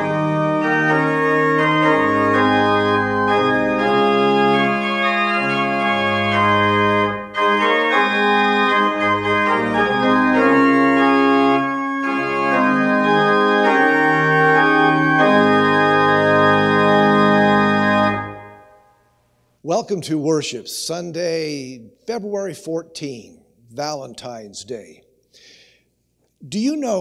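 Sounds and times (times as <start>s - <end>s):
organ playing sustained chords: 0.0s - 24.9s.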